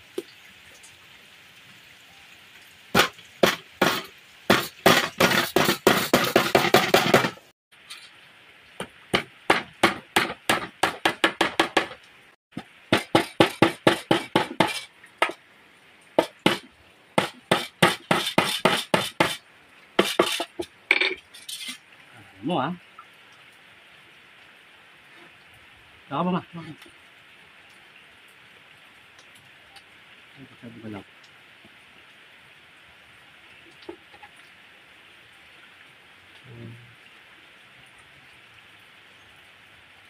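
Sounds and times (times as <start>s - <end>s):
hammer striking bamboo spit: 3.0s - 7.4s, 9.1s - 12.0s, 12.6s - 15.4s, 16.2s - 19.4s, 20.0s - 20.6s.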